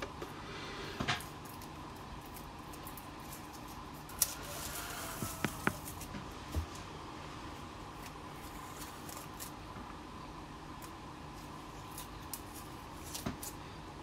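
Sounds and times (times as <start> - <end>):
tape peeling crackle: 1.4 - 6.1.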